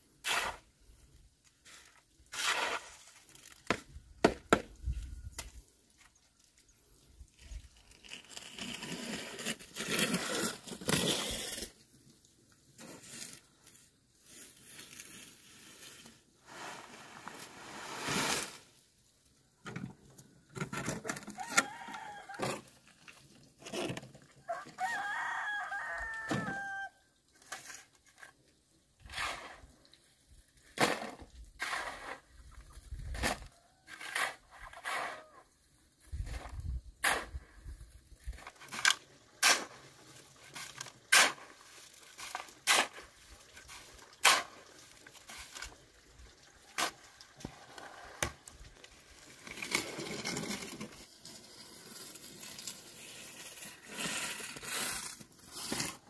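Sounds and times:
rooster crowing: 0:21.4 - 0:22.5, 0:24.5 - 0:27.0.

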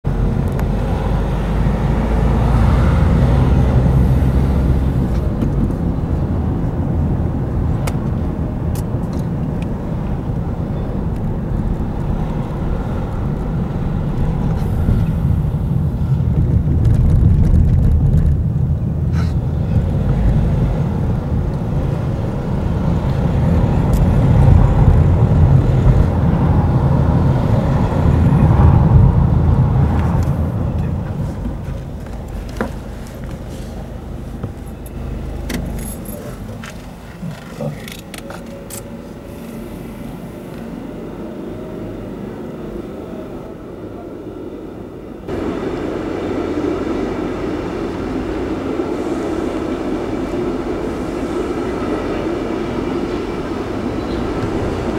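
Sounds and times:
car engine and road noise: 0:00.0 - 0:54.9.

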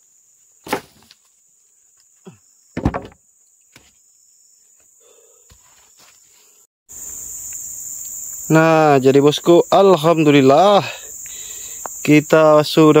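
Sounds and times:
insects trilling: 0:00.0 - 0:13.0
loud insect chorus: 0:00.0 - 0:13.0
sharp knocks: 0:02.8 - 0:03.2.

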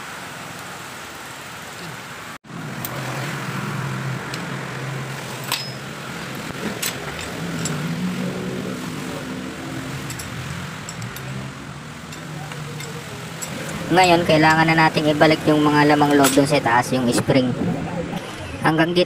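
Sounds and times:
light metallic clicks and taps: 0:10.0 - 0:11.5, 0:12.1 - 0:13.8.

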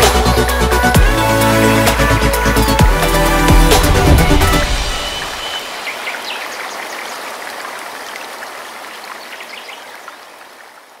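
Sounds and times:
waterfall and river rushing: 0:02.9 - 0:11.0.

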